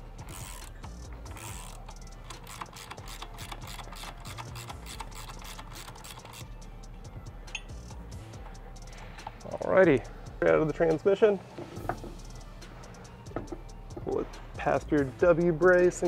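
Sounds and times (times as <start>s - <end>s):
ratcheting wrench clicking: 0.2s - 6.6s.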